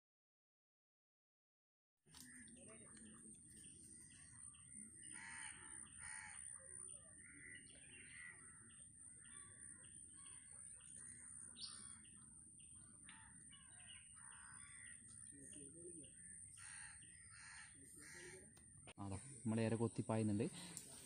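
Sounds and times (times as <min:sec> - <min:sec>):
birds chirping faintly: 0:02.1 - 0:21.0.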